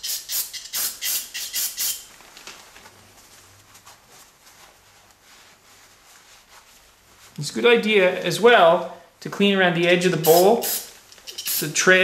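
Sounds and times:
paper towel rustling: 0:02.1 - 0:08.8
aerosol spray hisses: 0:10.3 - 0:11.8.

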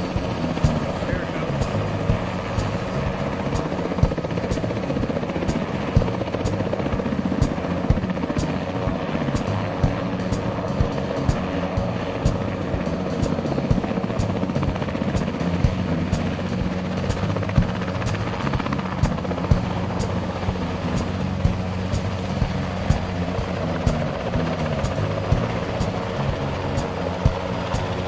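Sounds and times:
helicopter engine noise: 0:00.0 - 0:28.0
helicopter rotor beating: 0:00.0 - 0:28.0.

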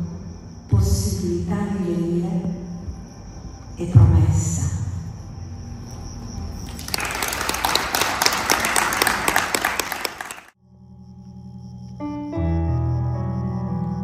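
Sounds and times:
audience applause: 0:06.6 - 0:10.6
keyboard playing sustained chords: 0:10.6 - 0:14.0.

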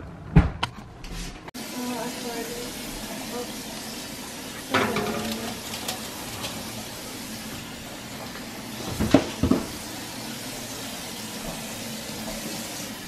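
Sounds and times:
baking tray sliding into oven: 0:04.7 - 0:06.9.

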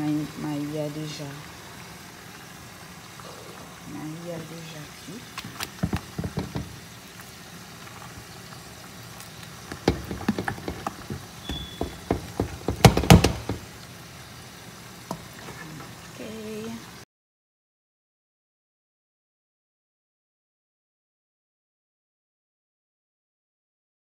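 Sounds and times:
spoon knocking and scraping pot: 0:05.4 - 0:06.8, 0:09.7 - 0:13.7.

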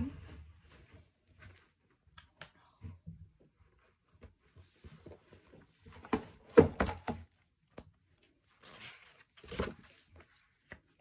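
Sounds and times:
knocks and thuds of handled box: 0:05.9 - 0:07.3.

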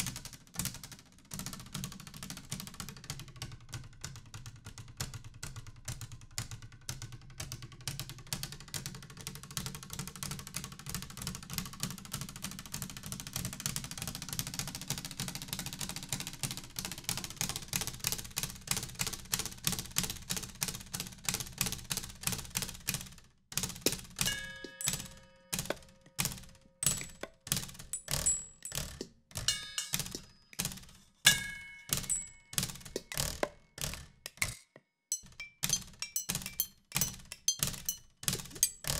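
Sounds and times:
taps and knocks on household objects: 0:23.7 - 0:25.9, 0:26.8 - 0:38.9.

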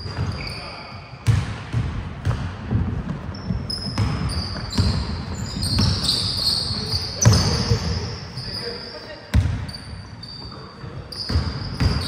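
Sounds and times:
sneakers squeaking on court: 0:00.0 - 0:12.0
ball bouncing on floor: 0:01.2 - 0:06.4.

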